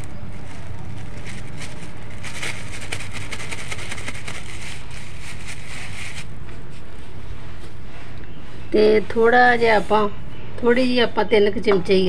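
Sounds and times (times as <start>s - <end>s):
plastic bag crinkling: 0.0s - 6.4s.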